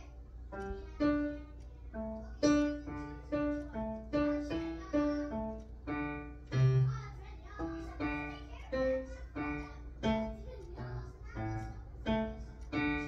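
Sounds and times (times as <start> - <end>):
piano notes: 0.0 - 13.0.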